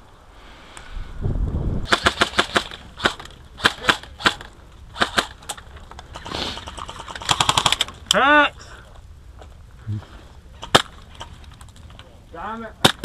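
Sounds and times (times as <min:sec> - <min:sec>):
airsoft rifle shots: 0:01.9 - 0:08.0, 0:10.6 - 0:11.4, 0:12.8 - 0:13.0.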